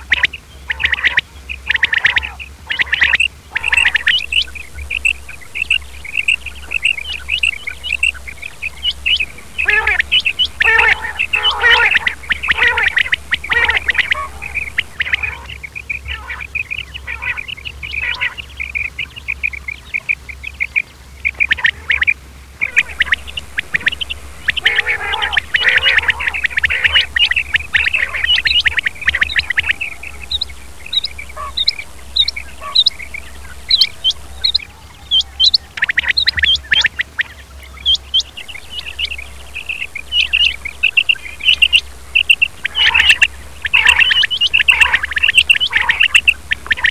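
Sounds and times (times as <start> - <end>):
quail calling: 0.0 - 46.9
steady low hum: 0.0 - 46.9.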